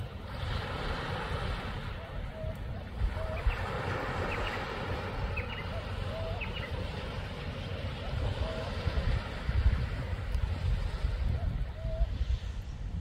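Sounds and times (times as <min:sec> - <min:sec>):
surf washing: 0:00.0 - 0:13.0
wind rumbling on microphone: 0:00.0 - 0:13.0
small birds chirping: 0:03.2 - 0:06.8.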